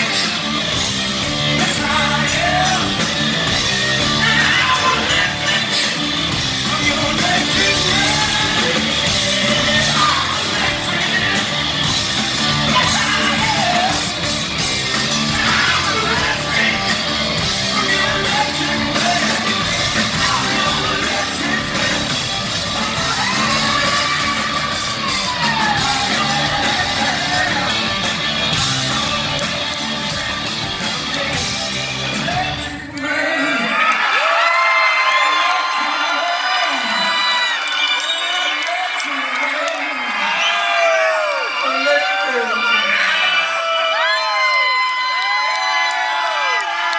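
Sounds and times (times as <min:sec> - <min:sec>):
rock band playing live: 0:00.0 - 0:33.1
singer singing and yelling: 0:00.0 - 0:46.9.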